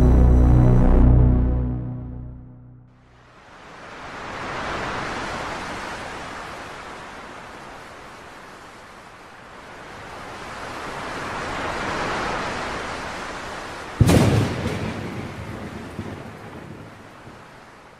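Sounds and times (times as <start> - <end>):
deep boom: 0.0 - 2.9, 14.0 - 15.4.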